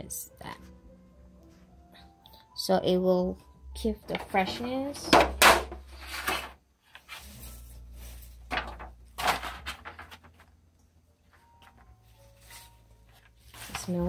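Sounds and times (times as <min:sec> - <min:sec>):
scraping and knocking handling: 0:04.1 - 0:07.3.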